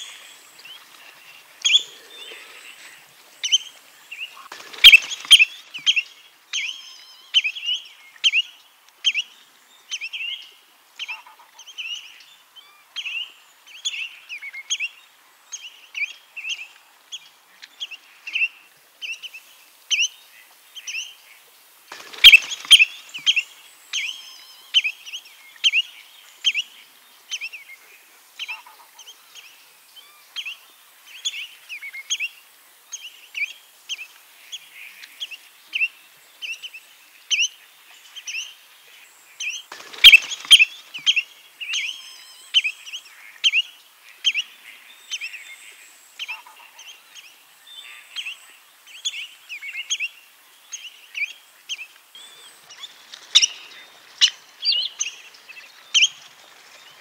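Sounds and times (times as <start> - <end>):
bird whistled calls: 4.8 - 6.0, 22.2 - 23.4, 40.0 - 42.8.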